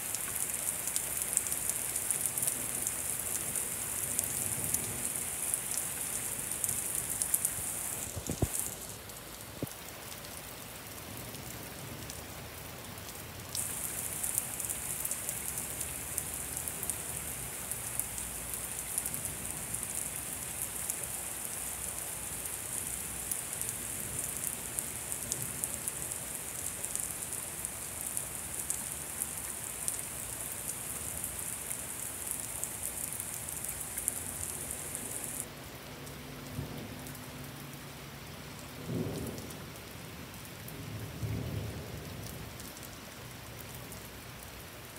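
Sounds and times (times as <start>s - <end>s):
heavy rain pouring: 0.0s - 44.9s
low rumble of thunder: 38.7s - 42.7s.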